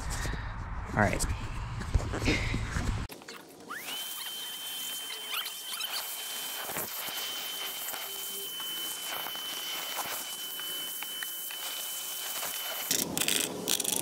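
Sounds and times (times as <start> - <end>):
shop vacuum whining: 3.7 - 13.0.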